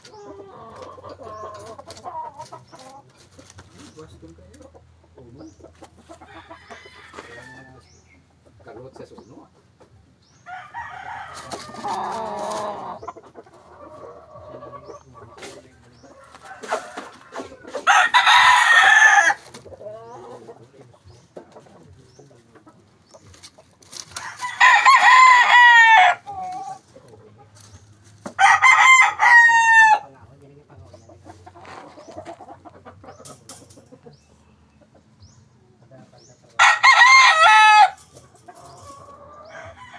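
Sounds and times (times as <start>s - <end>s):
roosters crowing: 0.0s - 4.5s, 5.4s - 8.1s, 10.3s - 21.2s, 23.8s - 34.2s, 36.5s - 39.9s.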